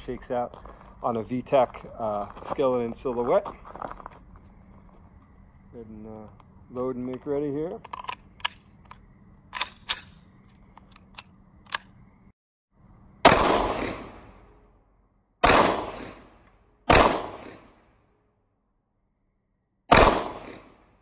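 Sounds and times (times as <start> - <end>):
pistol shots with echo: 13.2 - 14.5, 15.4 - 17.9, 19.9 - 21.0.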